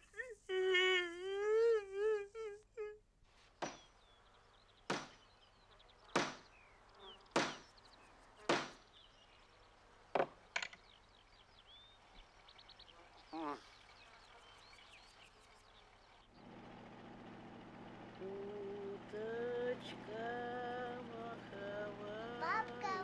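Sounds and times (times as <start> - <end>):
hammer driving nails into wood: 3.6 - 3.9, 4.9 - 5.2, 6.2 - 6.5, 7.4 - 7.6, 8.5 - 8.8
faint bird chirps: 3.6 - 16.4.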